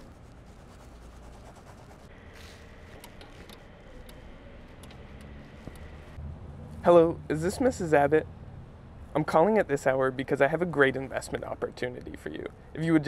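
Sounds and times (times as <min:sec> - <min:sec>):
pen scratching on notepad: 0:00.0 - 0:03.6.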